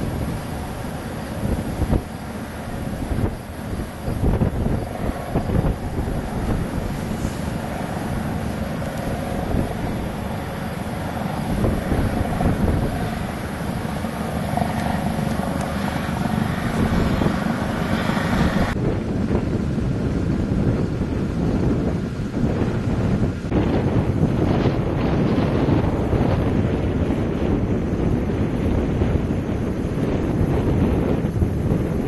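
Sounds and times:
gusty wind buffeting microphone: 0.0 - 32.0.

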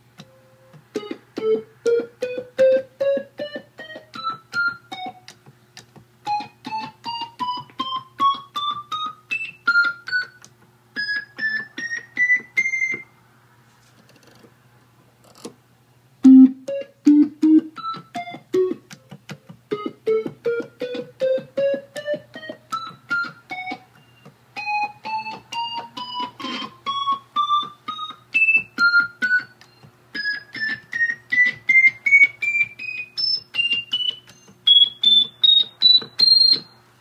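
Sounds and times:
combo organ single notes: 16.2 - 18.8.

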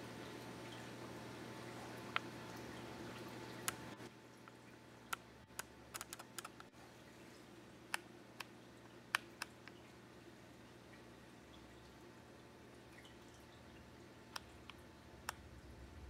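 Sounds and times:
faint steady hum: 0.0 - 16.0
sharp clicks: 5.1 - 6.7.

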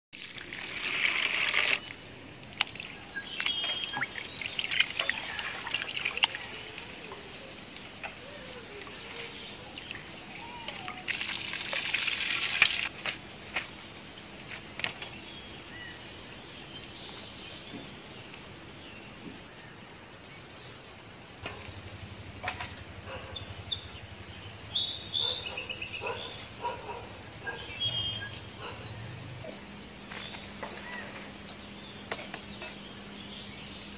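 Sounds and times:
birds chirping: 1.1 - 33.9
water splashing over shrimp: 2.5 - 13.8.

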